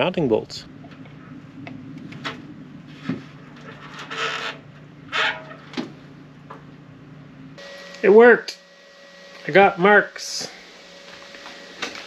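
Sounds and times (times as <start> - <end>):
steady low hum: 0.0 - 12.0
hardware scraping and rubbing: 2.0 - 5.8.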